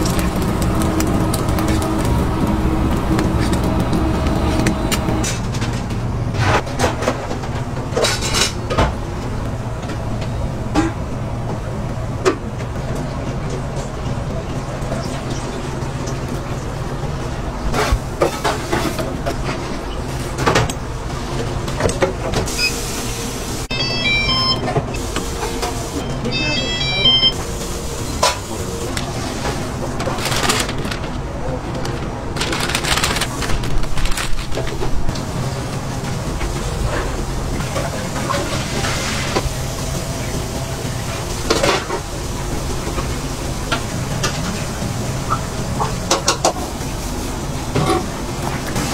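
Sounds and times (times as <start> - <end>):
low kitchen hum: 0.0 - 48.9
high beeping tones: 23.7 - 24.7, 26.0 - 27.4.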